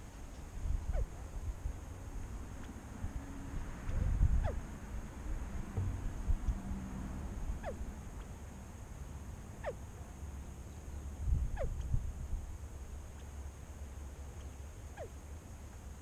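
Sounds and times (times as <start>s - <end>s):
quail calling: 0.9s - 1.1s, 3.9s - 4.6s, 7.6s - 7.8s, 9.6s - 9.8s, 11.6s - 11.8s.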